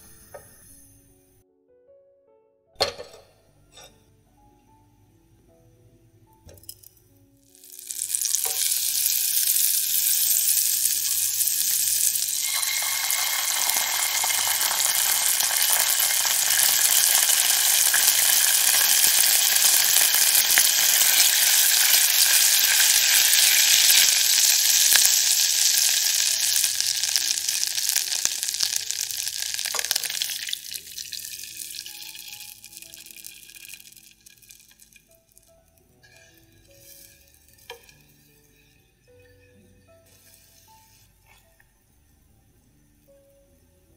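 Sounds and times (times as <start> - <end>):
butter sizzling in a saucepan: 7.4 - 41.0
milk pouring into a pan: 7.7 - 20.7.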